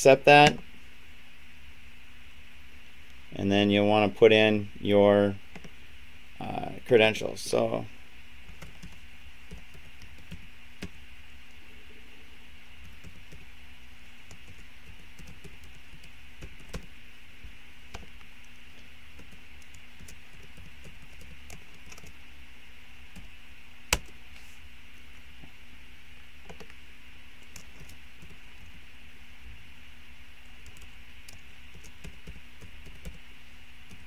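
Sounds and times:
steady hum: 0:00.0 - 0:34.0
computer keyboard keys clicking: 0:19.2 - 0:22.1.

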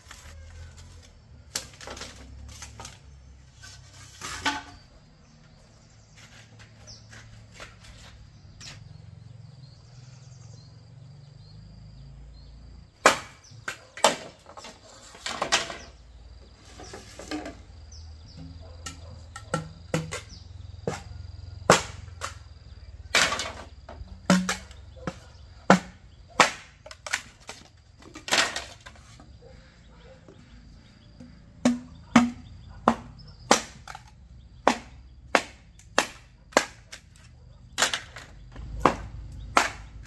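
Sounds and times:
tool striking bamboo: 0:13.0 - 0:14.6, 0:18.4 - 0:21.1, 0:21.7 - 0:22.5, 0:23.1 - 0:24.8, 0:25.7 - 0:27.4, 0:31.2 - 0:40.0.

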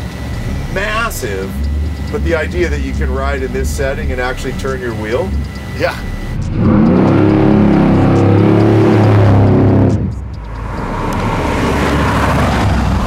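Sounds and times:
car engine accelerating hard: 0:00.0 - 0:13.0.

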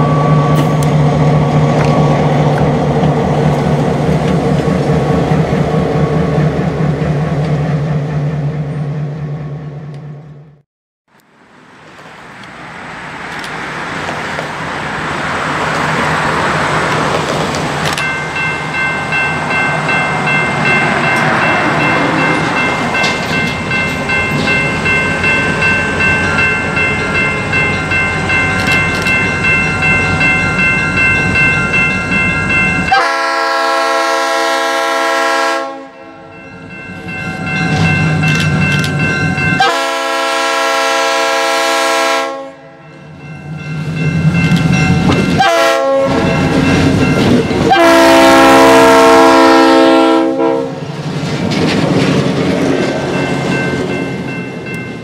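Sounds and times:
diesel locomotive rumble: 0:00.0 - 0:10.6, 0:11.2 - 0:55.0
train air horn blasts: 0:32.9 - 0:36.3, 0:39.6 - 0:42.8, 0:45.4 - 0:46.3, 0:47.6 - 0:50.8.

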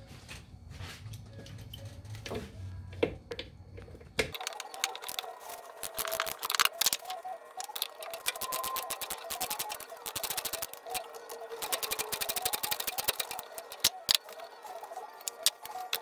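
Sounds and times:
wrench and metal fittings clicking: 0:05.8 - 0:10.8, 0:11.6 - 0:14.4.

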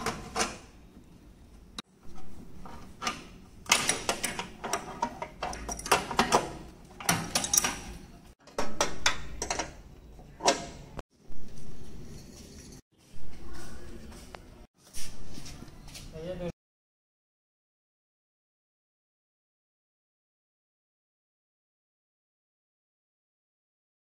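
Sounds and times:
tools clinking on metal pipes: 0:03.7 - 0:09.8.

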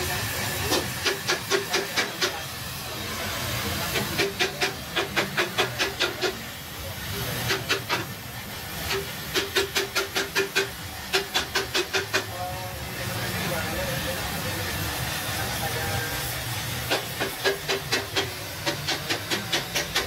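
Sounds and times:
gas welding torch hissing: 0:00.0 - 0:20.0.

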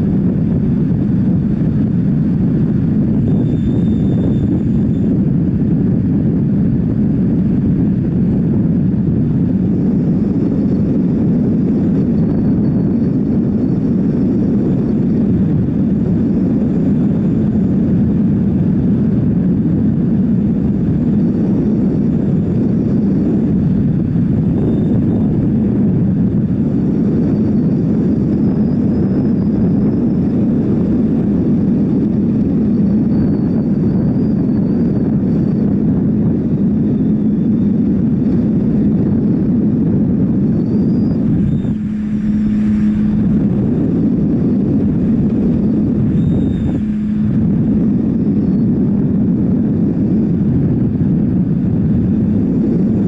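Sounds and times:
wind rushing over microphone: 0:00.0 - 0:53.0
motorcycle engine humming: 0:35.2 - 0:53.0.

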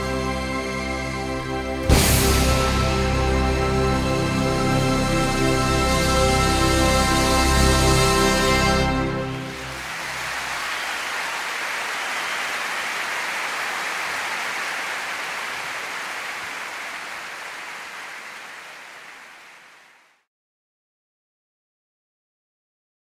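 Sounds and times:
rain-like rushing hiss: 0:09.4 - 0:20.2.

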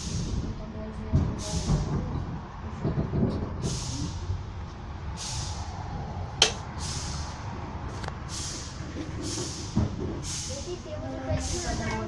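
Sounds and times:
train rumble: 0:00.0 - 0:12.0
short hissing bursts: 0:05.2 - 0:05.7, 0:06.8 - 0:07.4.

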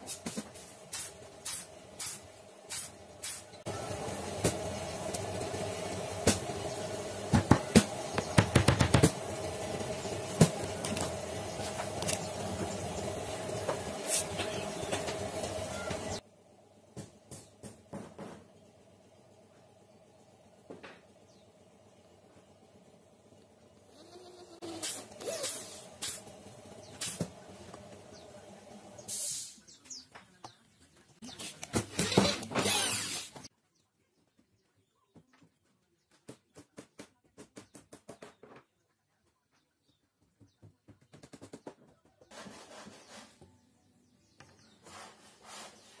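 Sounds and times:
electric drill boring into wood: 0:32.0 - 0:33.4.

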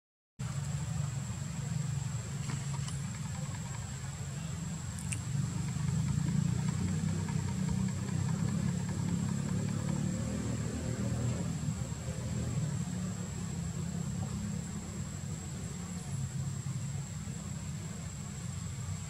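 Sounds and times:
engine idling: 0:00.4 - 0:19.0
faint high-pitched whine: 0:00.4 - 0:19.0
small clicks: 0:04.9 - 0:09.8.

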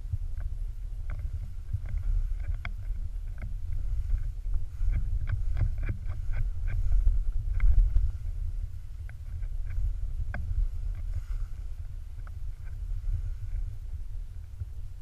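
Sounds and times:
wind and motion rumble: 0:00.0 - 0:15.0
sharp clicks and ticks: 0:00.3 - 0:08.1.

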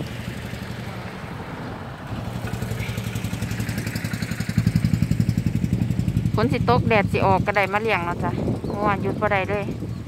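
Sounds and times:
small engine running: 0:02.0 - 0:10.0.

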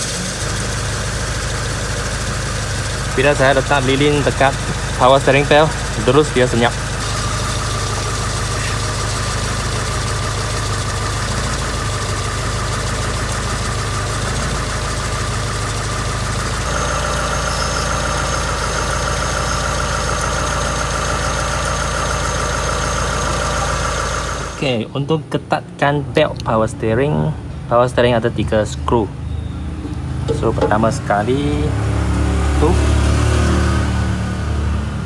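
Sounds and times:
car engine idling: 0:00.0 - 0:24.9, 0:29.1 - 0:35.0
high-pitched belt whine: 0:00.0 - 0:24.9
higher tone: 0:16.5 - 0:24.8.

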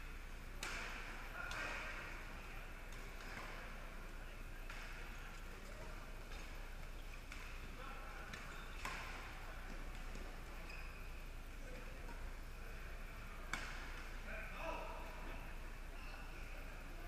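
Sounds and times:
rackets hitting shuttlecock: 0:00.6 - 0:03.9, 0:04.6 - 0:12.2, 0:13.4 - 0:15.2.

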